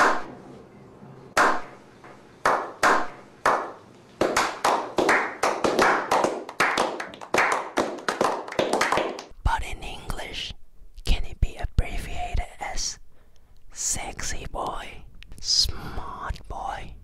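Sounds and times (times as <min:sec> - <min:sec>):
men clapping: 0:02.4 - 0:09.3.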